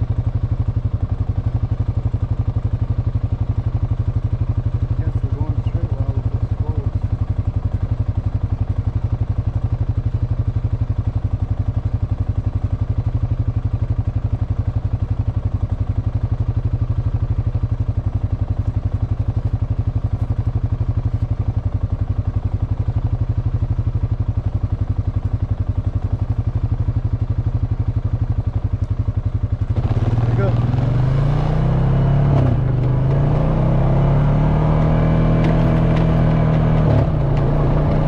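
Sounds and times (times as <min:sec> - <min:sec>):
atv engine idling: 0:00.0 - 0:38.0.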